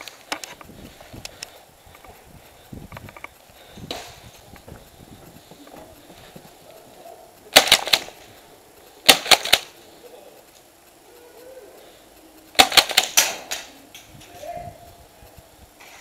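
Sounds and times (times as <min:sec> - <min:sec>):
faint clicks: 0:00.0 - 0:06.8
airsoft guns firing: 0:07.5 - 0:08.3, 0:09.0 - 0:09.8, 0:12.5 - 0:13.8.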